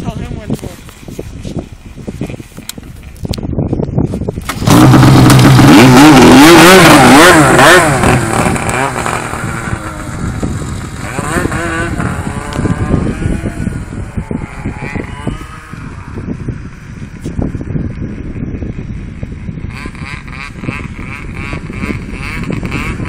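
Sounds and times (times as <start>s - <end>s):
snowmobile engine revving: 4.4s - 16.4s, 19.7s - 23.0s.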